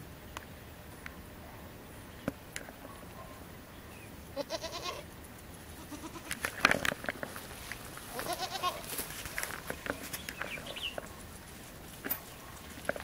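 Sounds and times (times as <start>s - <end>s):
goats bleating: 4.4s - 5.1s, 5.7s - 6.4s, 8.1s - 9.0s.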